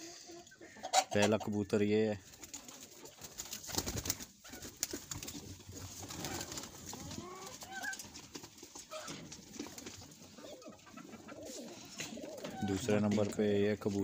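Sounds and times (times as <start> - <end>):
pigeons cooing: 5.6 - 8.1, 8.9 - 13.0.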